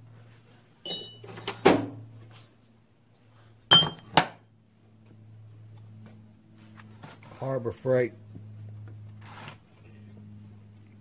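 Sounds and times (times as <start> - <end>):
low steady hum: 0.0 - 11.0
steel tools knocking on workbench: 3.7 - 4.4.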